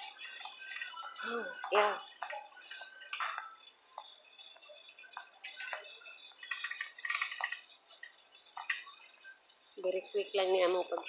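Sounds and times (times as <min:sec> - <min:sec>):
faint store background noise: 0:00.0 - 0:11.0.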